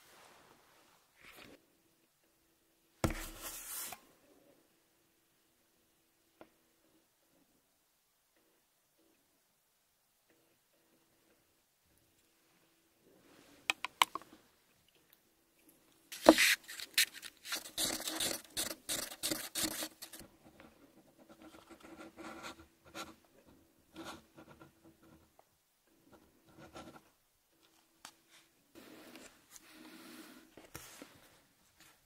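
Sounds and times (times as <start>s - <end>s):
paper rustling and scraping: 3.0s - 4.0s, 16.1s - 20.2s.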